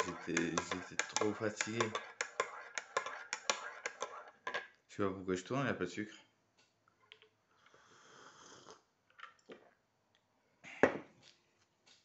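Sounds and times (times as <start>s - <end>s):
person breathing: 7.6s - 8.8s.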